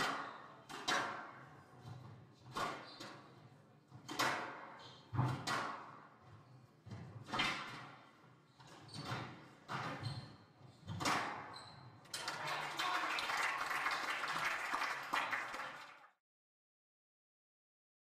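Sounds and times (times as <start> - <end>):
applause: 12.2 - 16.2.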